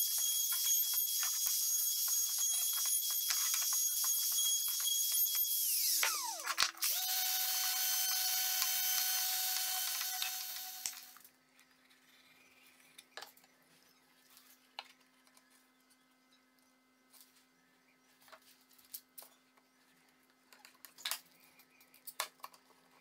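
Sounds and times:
wood router whining: 0.0s - 11.2s.

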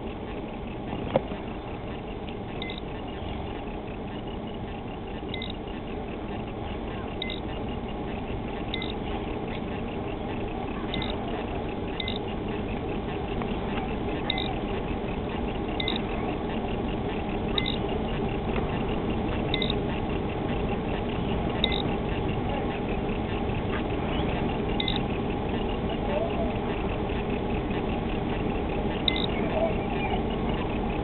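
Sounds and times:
boat motor rumbling: 0.0s - 31.0s
short high electronic beeps: 2.6s - 2.9s, 5.2s - 5.6s, 7.2s - 7.7s, 8.7s - 9.0s, 11.9s - 12.3s, 14.2s - 14.6s, 15.8s - 16.1s, 17.5s - 17.8s, 19.5s - 19.8s, 21.1s - 21.9s, 24.1s - 25.0s, 29.0s - 30.1s.

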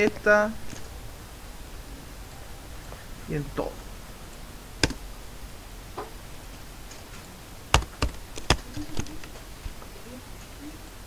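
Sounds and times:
keyboard and mouse clicks: 4.8s - 5.0s, 7.7s - 9.4s.

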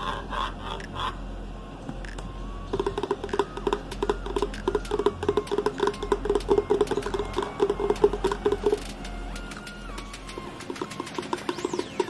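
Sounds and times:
fingers tapping plastic bottle: 2.7s - 11.7s.

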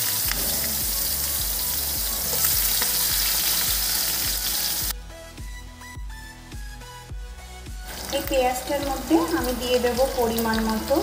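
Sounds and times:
onions sizzling in hot oil: 0.0s - 4.9s, 7.9s - 11.0s
pulsing bass beat music: 0.0s - 11.0s.

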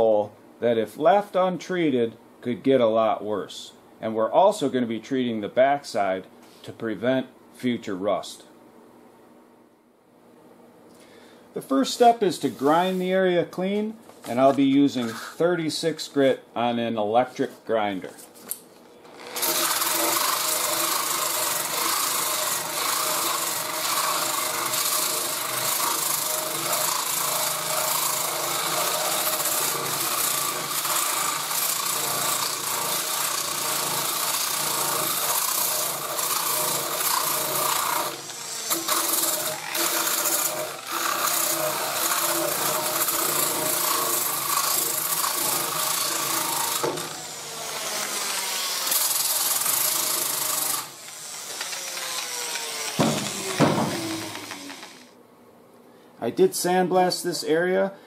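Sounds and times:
electric grinder grinding metal: 19.1s - 55.1s.

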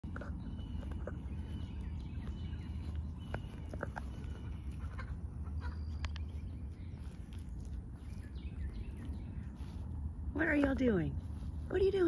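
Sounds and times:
steady low rumble: 0.0s - 12.0s
chickens clucking: 0.1s - 6.5s.

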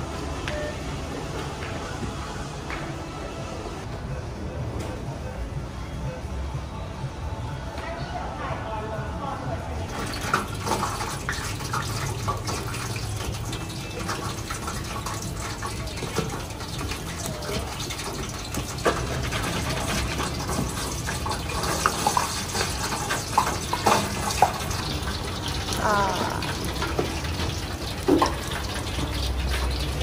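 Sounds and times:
chicken deep-frying in oil: 9.9s - 30.0s
oil crackling and popping: 9.9s - 30.0s.

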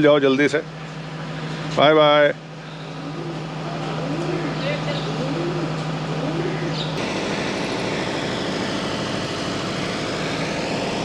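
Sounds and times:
engine running: 0.0s - 11.0s
steady hum: 6.9s - 11.0s.

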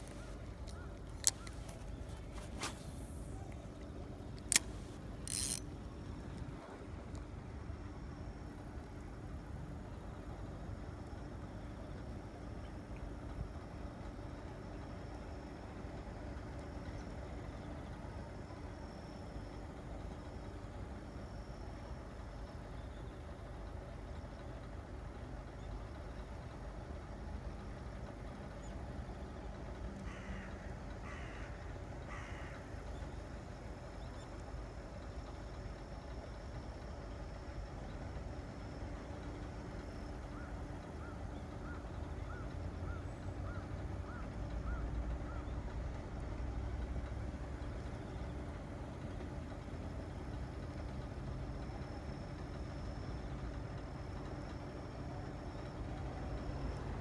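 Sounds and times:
crow cawing: 30.1s - 32.7s.

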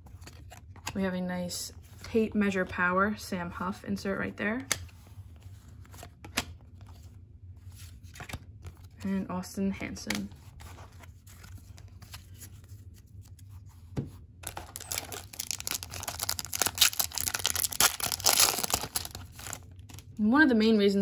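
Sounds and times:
plastic wrapper tearing and crinkling: 14.4s - 20.2s.

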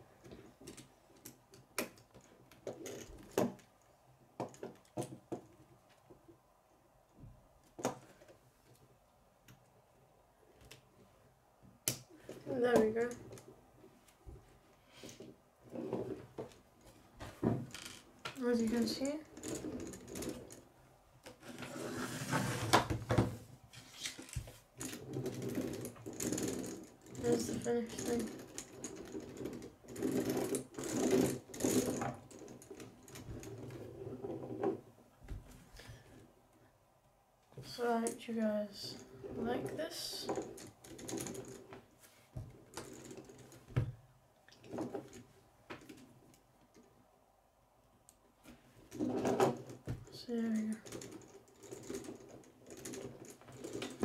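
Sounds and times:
plastic toy rattling on wood: 17.6s - 20.7s, 24.0s - 33.8s, 48.9s - 54.0s.

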